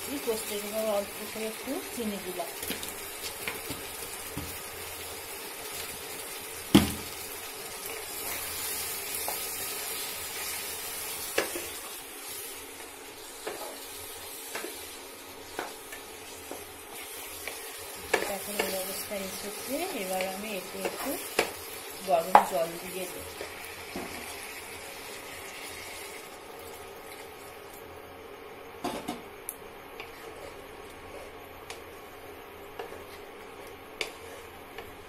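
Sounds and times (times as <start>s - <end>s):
meat sizzling in oil: 0.0s - 27.8s
spatula knocking pan: 22.2s - 22.6s.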